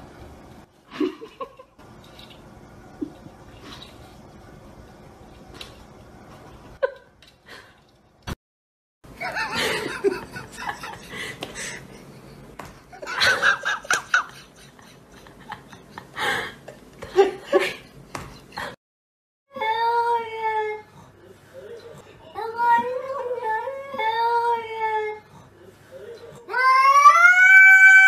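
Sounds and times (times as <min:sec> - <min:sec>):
person laughing: 0:09.2 - 0:12.3, 0:12.9 - 0:18.8.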